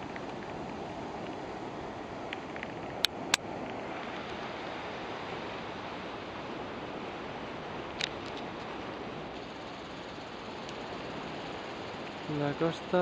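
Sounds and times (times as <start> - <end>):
sea surf: 0.0 - 13.0
wind: 0.0 - 13.0
faint ticks: 2.3 - 4.4, 7.9 - 10.8.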